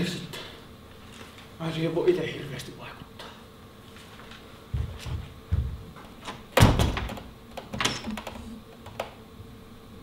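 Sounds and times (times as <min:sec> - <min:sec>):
footsteps walking away: 0:03.8 - 0:06.4
door swinging shut with thud: 0:06.2 - 0:08.2.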